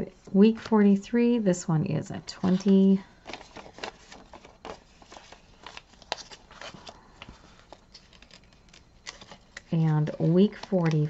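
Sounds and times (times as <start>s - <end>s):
banknotes rustling: 2.4s - 11.0s.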